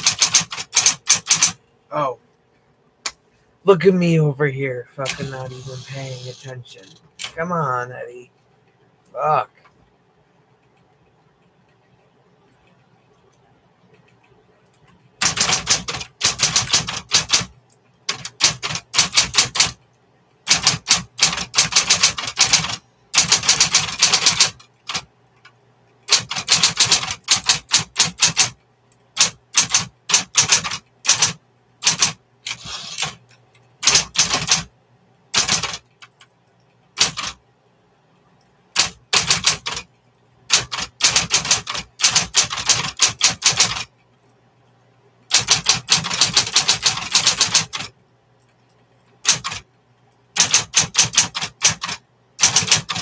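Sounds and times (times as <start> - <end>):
faint low hum: 0.0 - 50.4
typewriter key clatter: 40.5 - 43.9, 45.3 - 47.9, 49.2 - 49.6, 50.4 - 53.0.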